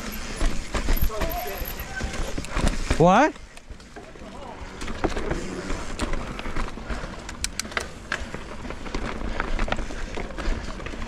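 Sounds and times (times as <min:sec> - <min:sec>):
bike clicking and rattling: 0:00.0 - 0:11.0
bike tyres crackling over leaves: 0:00.0 - 0:11.0.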